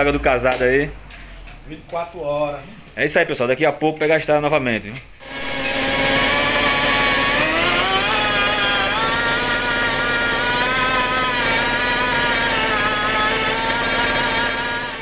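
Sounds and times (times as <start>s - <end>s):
rotary buffer whining: 5.2s - 15.0s.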